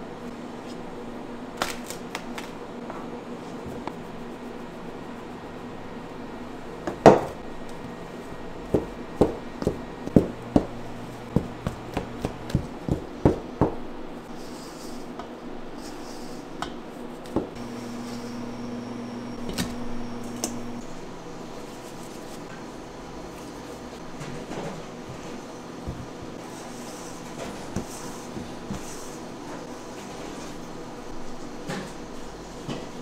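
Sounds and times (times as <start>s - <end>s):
low machine hum: 0.0s - 33.0s
hard objects knocking on work surface: 8.7s - 13.8s.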